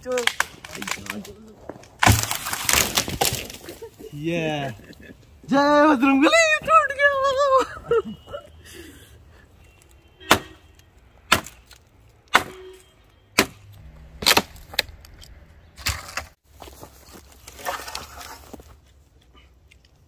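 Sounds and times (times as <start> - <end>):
branches crackling and breaking: 0.0 - 4.0, 13.4 - 19.0.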